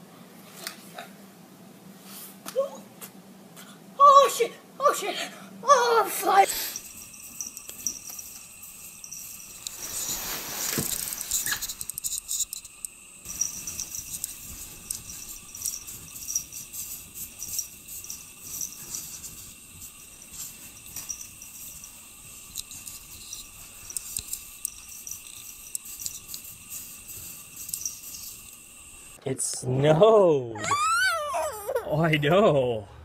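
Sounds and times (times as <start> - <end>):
faint high whine: 6.2 - 29.2
cat scratching at packed snow: 9.4 - 11.8.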